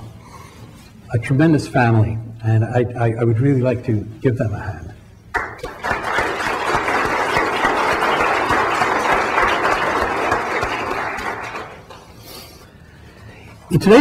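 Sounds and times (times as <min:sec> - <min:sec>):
audience applauding: 0:05.3 - 0:12.2.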